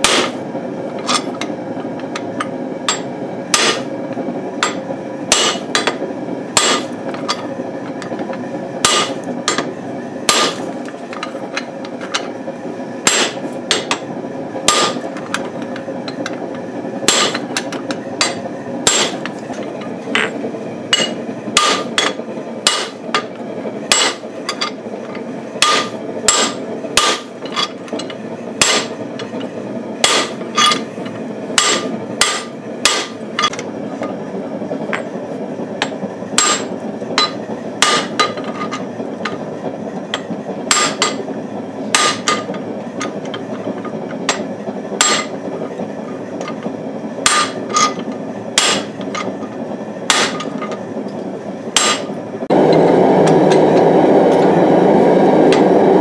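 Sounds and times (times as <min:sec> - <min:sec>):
forge burner rushing: 0:00.0 - 0:56.0
hammer striking metal die: 0:02.9 - 0:03.9, 0:04.6 - 0:06.0, 0:06.6 - 0:06.9, 0:08.8 - 0:09.7, 0:10.3 - 0:10.6, 0:13.1 - 0:14.0, 0:14.7 - 0:15.0, 0:17.1 - 0:19.3, 0:20.2 - 0:23.3, 0:23.9 - 0:24.7, 0:25.6 - 0:27.8, 0:28.6 - 0:29.0, 0:30.0 - 0:30.8, 0:31.6 - 0:33.6, 0:35.8 - 0:38.5, 0:40.7 - 0:41.2, 0:41.9 - 0:42.5, 0:45.0 - 0:45.3, 0:47.3 - 0:48.0, 0:48.6 - 0:49.0, 0:50.1 - 0:50.5, 0:51.8 - 0:52.2.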